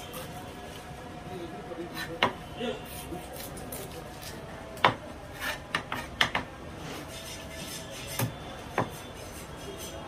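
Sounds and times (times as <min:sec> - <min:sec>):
knife chopping on wooden block: 0:04.8 - 0:06.5, 0:07.6 - 0:09.0.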